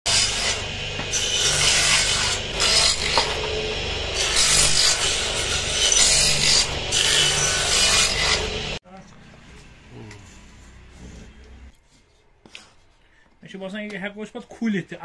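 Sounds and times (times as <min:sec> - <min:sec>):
circular saw cutting wood: 0:00.1 - 0:08.8
sanding disc grinding wood: 0:00.1 - 0:08.8.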